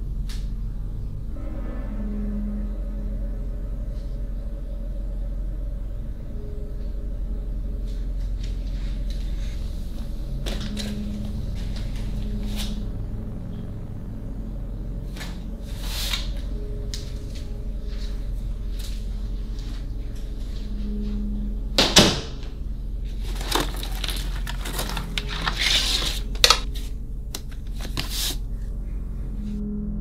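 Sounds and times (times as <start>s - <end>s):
steady low hum: 0.0s - 30.0s
scraping rustle: 23.2s - 26.9s.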